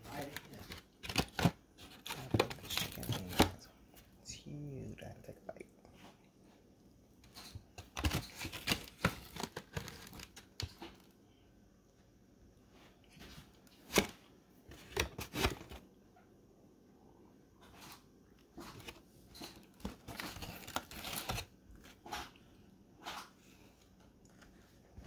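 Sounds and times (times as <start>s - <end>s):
paper boxes crackling: 0.0s - 3.6s, 7.8s - 11.0s, 18.6s - 22.2s
paper rustling: 0.1s - 3.6s, 7.8s - 11.0s, 18.6s - 22.3s.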